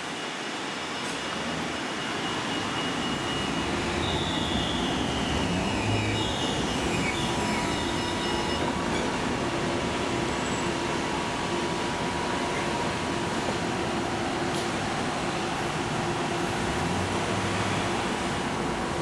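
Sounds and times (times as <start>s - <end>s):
tram rolling rumble on rails: 0.0s - 19.0s.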